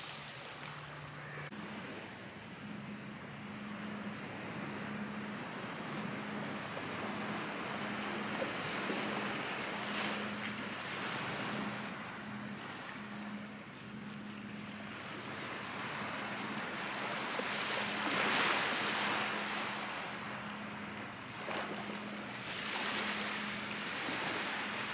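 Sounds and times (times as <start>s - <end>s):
small waves washing onto sand: 0.0s - 2.4s, 14.9s - 24.9s.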